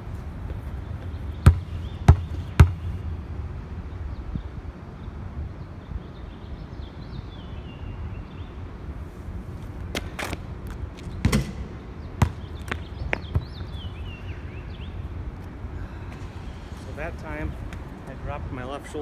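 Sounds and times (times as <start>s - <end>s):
basketball bouncing on concrete: 1.0s - 3.0s, 11.0s - 13.8s.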